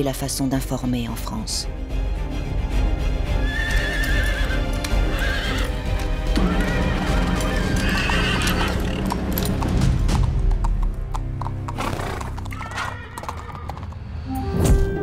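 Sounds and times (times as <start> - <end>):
background music: 0.0 - 15.0
horse neighing: 3.4 - 5.8, 6.4 - 9.3, 11.8 - 14.0
hooves clip-clopping: 3.4 - 14.0.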